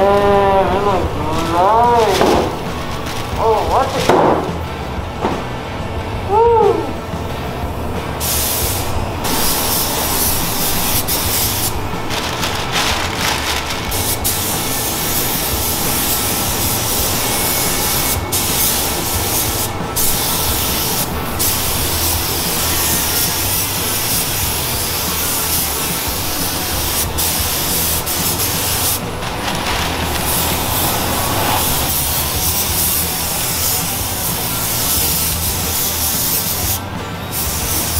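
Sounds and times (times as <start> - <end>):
steady low hum: 0.0 - 34.7
spray gun hissing: 8.2 - 37.9.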